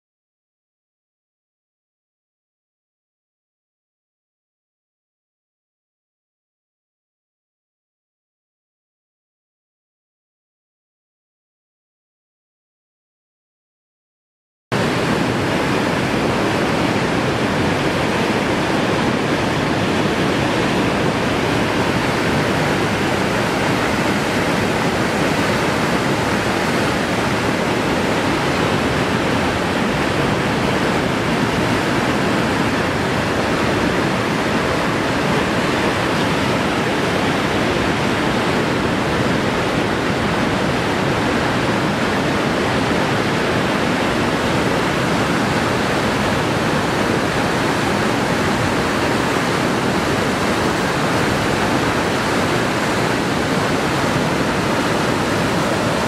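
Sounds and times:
whitewater rapids rushing: 0:14.8 - 0:56.0.

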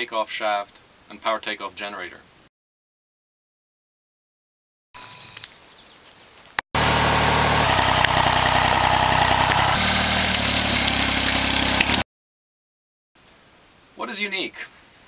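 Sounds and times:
tractor engine running: 0:06.8 - 0:12.0.

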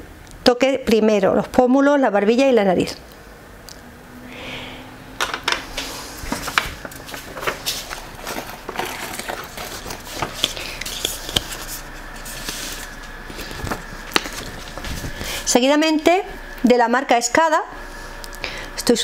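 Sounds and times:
paper card rustling and crinkling: 0:06.3 - 0:15.5.

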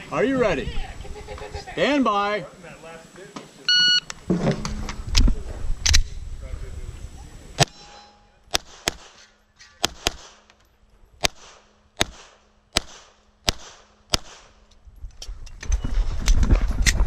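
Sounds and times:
pistol shots: 0:08.5 - 0:10.5, 0:11.2 - 0:14.6.

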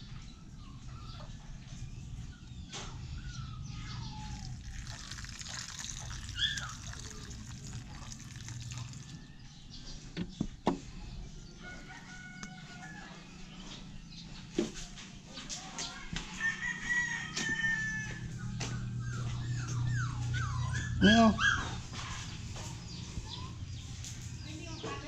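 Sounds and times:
roosters crowing: 0:02.9 - 0:10.1, 0:11.5 - 0:13.5, 0:16.3 - 0:24.8.

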